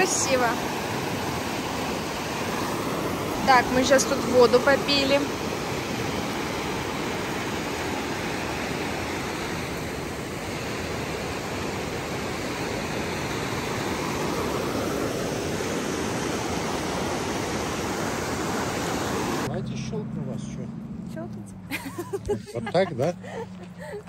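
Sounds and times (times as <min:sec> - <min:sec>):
river rushing over rocks: 0:00.0 - 0:19.5.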